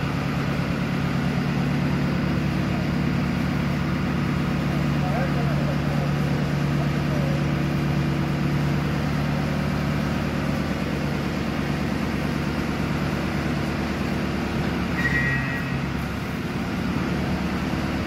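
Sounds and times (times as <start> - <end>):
tractor engine drone: 0.0 - 18.0
brief high whine: 14.9 - 16.0.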